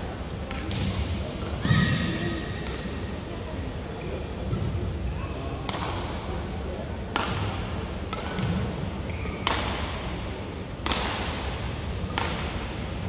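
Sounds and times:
rackets hitting shuttlecock: 0.5 - 2.0, 2.6 - 3.1, 5.6 - 6.2, 7.1 - 13.0
shoe squeak: 9.1 - 9.4.

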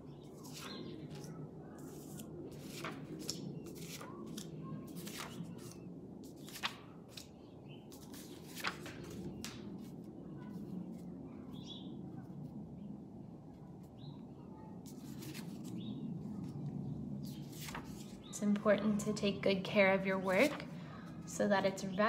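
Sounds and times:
paper cards tapping and rustling: 0.4 - 7.3, 7.9 - 11.0.

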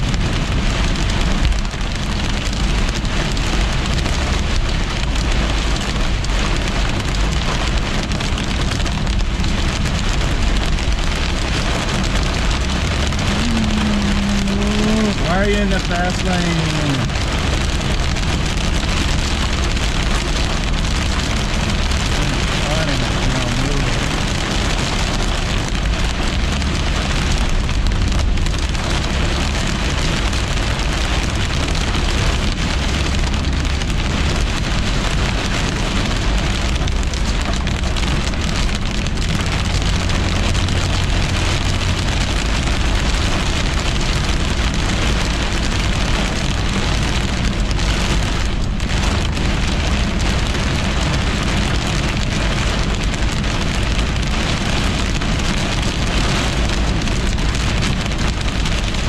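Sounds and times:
heavy rain on car windshield: 0.0 - 59.0
low road rumble: 0.0 - 59.0.

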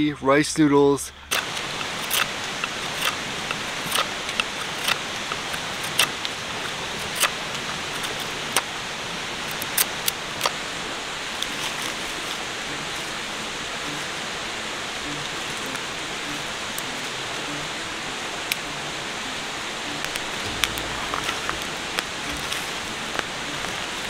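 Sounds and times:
steady hiss: 0.9 - 24.0.

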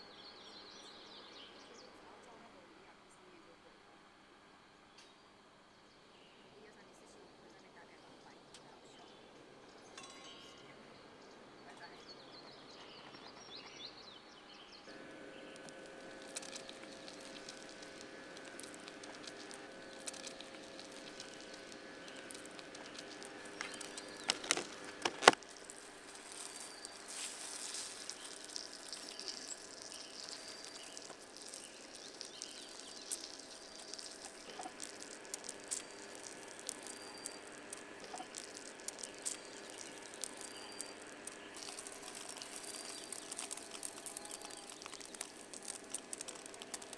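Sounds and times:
buns sizzling in oil: 14.9 - 46.9.

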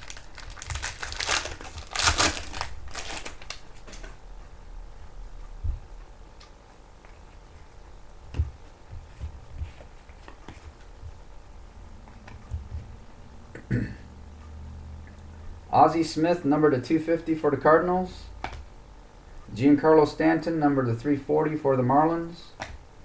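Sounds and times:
foil wrapper crinkling and tearing: 0.0 - 4.0
handling of cards: 0.0 - 4.2, 8.3 - 11.2.

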